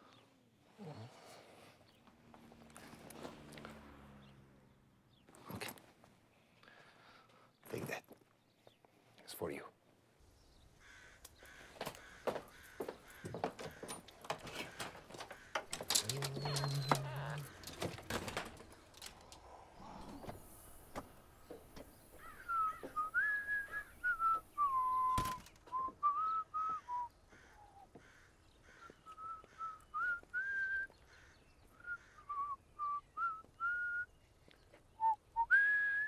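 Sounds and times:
person whistling a tune: 35.0s - 36.0s.

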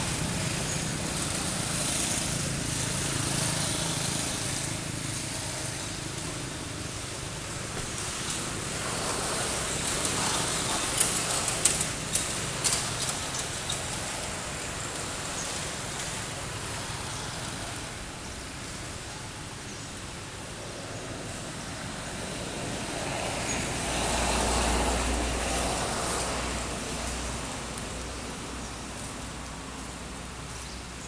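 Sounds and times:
outdoor background noise: 0.0s - 31.0s.

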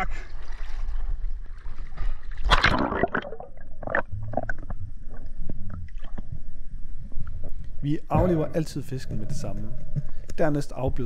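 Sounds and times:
water splashing and gurgling: 0.0s - 6.5s.

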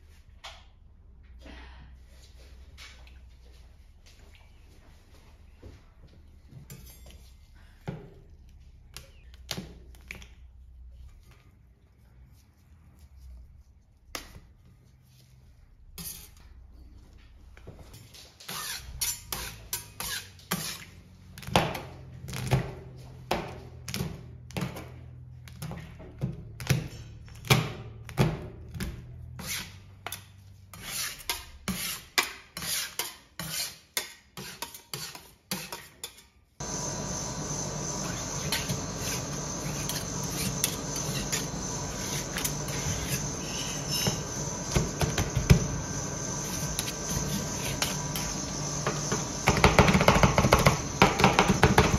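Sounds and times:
metal spatulas scraping on steel: 16.0s - 16.4s, 18.5s - 20.9s, 29.4s - 36.3s
high buzzing hum: 36.6s - 51.9s.

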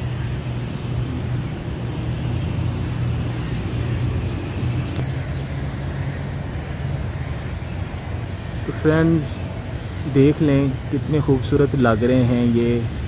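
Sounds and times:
low mechanical drone: 0.0s - 11.8s.

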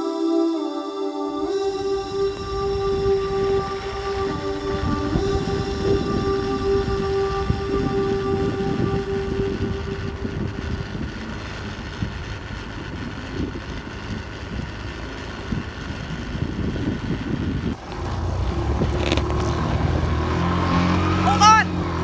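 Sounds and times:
scooter engine humming: 0.0s - 22.0s
wind buffeting microphone: 1.7s - 22.0s.

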